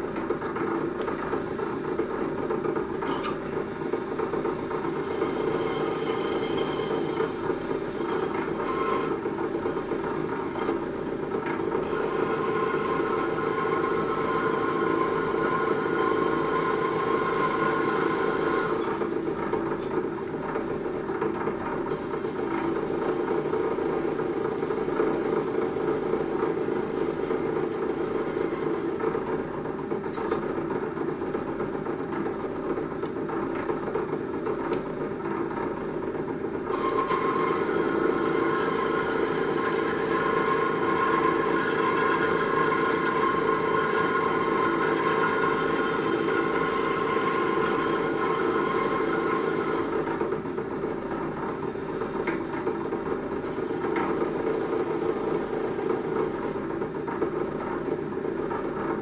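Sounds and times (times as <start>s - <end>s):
small power tool humming: 4.9s - 11.1s, 11.7s - 19.0s, 36.7s - 50.2s.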